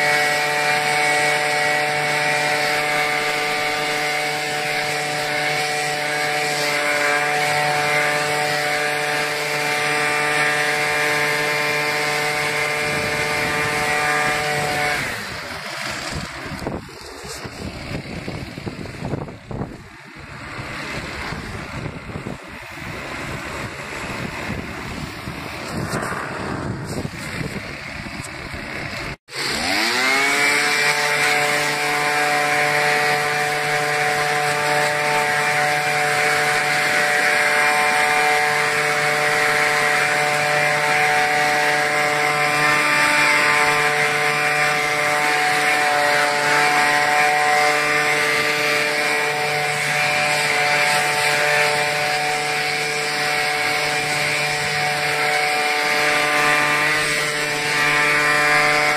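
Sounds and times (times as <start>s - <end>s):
leaf blower engine running: 0.0s - 58.9s.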